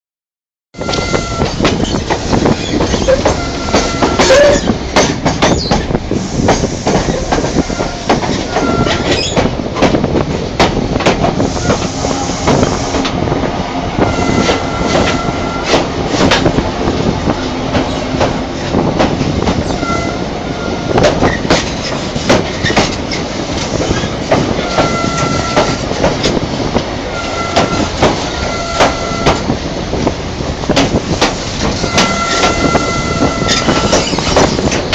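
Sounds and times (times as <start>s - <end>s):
train rumble inside coach: 0.8s - 34.9s
high wheel squeals: 7.6s - 9.4s, 31.8s - 34.7s.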